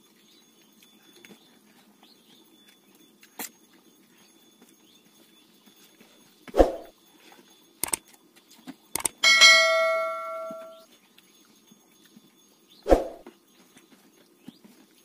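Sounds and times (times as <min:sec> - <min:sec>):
sharp mouse clicks: 0:07.8 - 0:08.0, 0:09.0 - 0:09.2
notification bell ding: 0:09.2 - 0:10.8.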